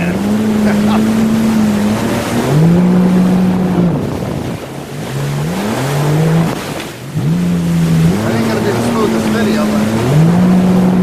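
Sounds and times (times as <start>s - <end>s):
water spray rushing: 0.0s - 11.0s
watercraft engine running: 0.0s - 11.0s.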